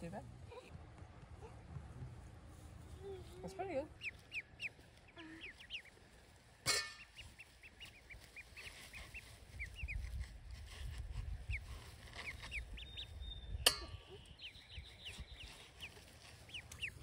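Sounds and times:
ducklings peeping: 0:02.8 - 0:17.0
sharp clink: 0:06.7 - 0:07.1, 0:13.6 - 0:14.2.

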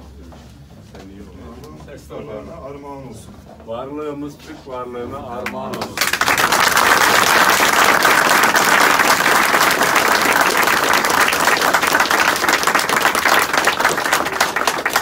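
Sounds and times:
people applauding: 0:05.4 - 0:15.0.

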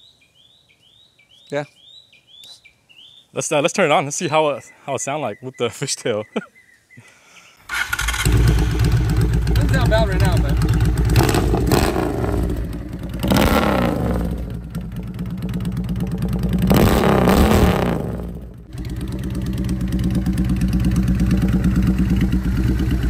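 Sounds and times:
motorcycle engine revving and idling: 0:07.7 - 0:23.0.

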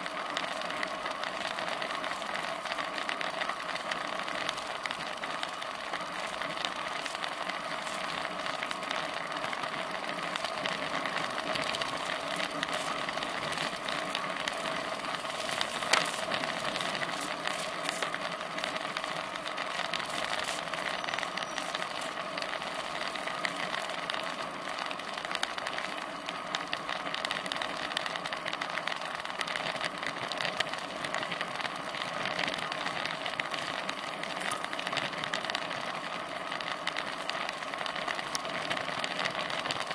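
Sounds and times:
bicycle rattles: 0:00.0 - 0:39.9
tyres hissing on asphalt: 0:00.7 - 0:24.0.

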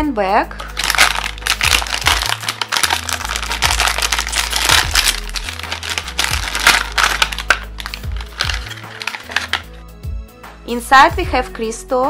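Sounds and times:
background music with bass line: 0:00.0 - 0:12.0
plastic bag crinkling: 0:00.6 - 0:09.7.

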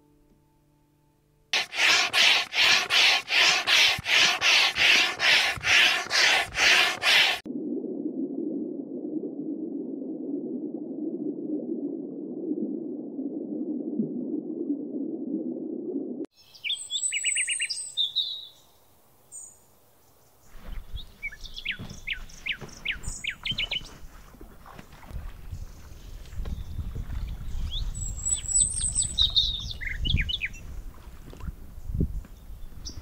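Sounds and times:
small birds chirping: 0:20.2 - 0:24.8, 0:25.4 - 0:31.5.

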